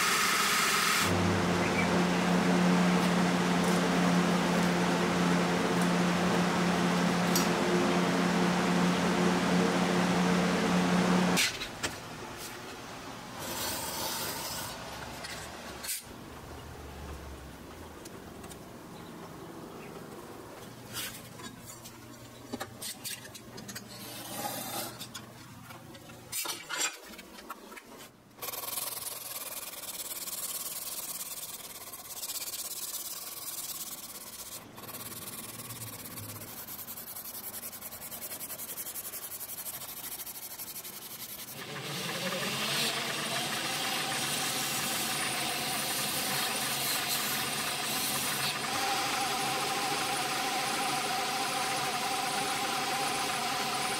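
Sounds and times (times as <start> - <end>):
belt sander motor whine: 0.0 - 11.4, 41.6 - 53.9
hand sanding strips rubbing: 28.5 - 42.2.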